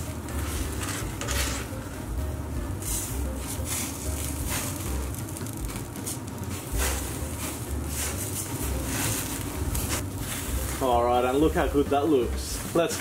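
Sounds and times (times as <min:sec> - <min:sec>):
kebabs sizzling on a grill: 0:00.0 - 0:13.0
low rumble of flames: 0:00.0 - 0:13.0.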